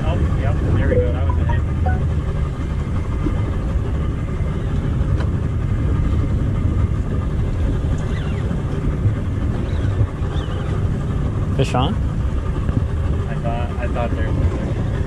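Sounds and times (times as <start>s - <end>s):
boat engine idling: 0.0s - 15.0s
wind: 0.0s - 15.0s
water noise: 0.4s - 11.5s.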